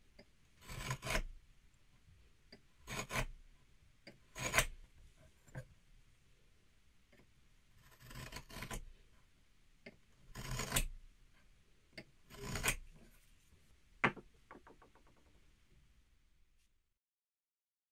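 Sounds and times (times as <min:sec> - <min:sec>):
knife scoring wood: 0:00.6 - 0:01.4, 0:02.8 - 0:03.4, 0:04.1 - 0:05.7, 0:07.8 - 0:09.0, 0:09.9 - 0:11.0, 0:12.0 - 0:13.4
knife tapping down on board: 0:14.0 - 0:14.7.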